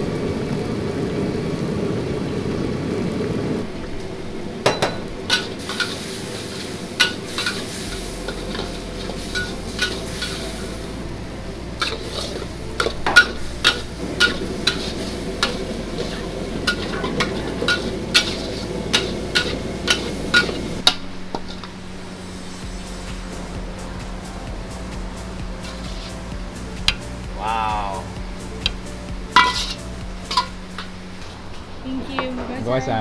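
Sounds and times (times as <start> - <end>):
noodles sizzling: 0.0 - 33.0
metal ladle scraping a wok: 5.2 - 10.9, 11.8 - 22.6, 25.6 - 26.4, 28.6 - 31.4.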